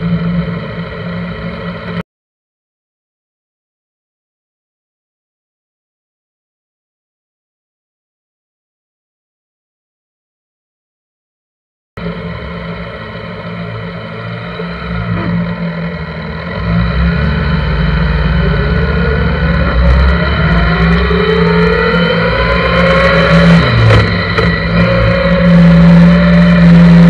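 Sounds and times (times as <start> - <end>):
motorcycle engine accelerating: 12.0 - 27.0.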